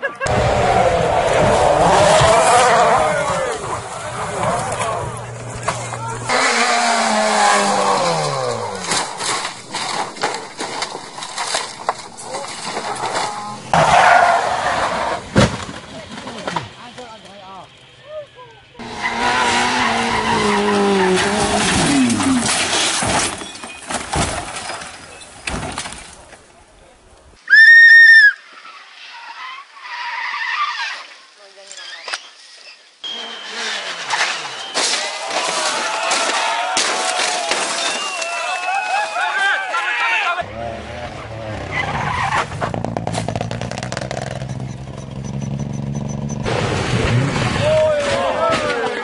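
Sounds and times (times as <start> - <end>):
voices shouting: 0.0 - 15.2, 33.1 - 40.7, 47.6 - 49.0
car crashing and rolling on tarmac: 0.2 - 17.0, 18.8 - 26.3, 33.1 - 39.4, 41.1 - 49.0.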